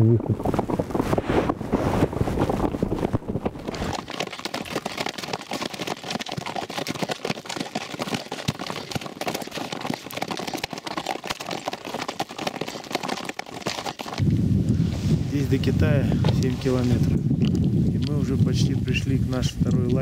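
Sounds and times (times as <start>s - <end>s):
wind rumbling on microphone: 0.0s - 5.0s, 14.1s - 20.0s
hooves clicking on ice: 0.4s - 14.4s, 15.4s - 20.0s.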